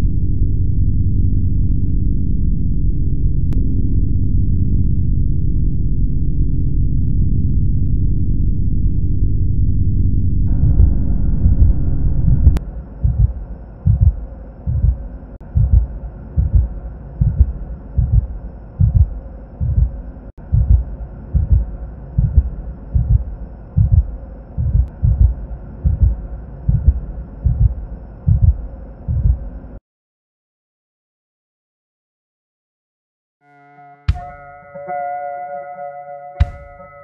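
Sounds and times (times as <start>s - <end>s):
loud low rumble: 0.0s - 29.7s
faint steady hum: 0.0s - 29.8s
heartbeat double thumps: 10.4s - 29.5s.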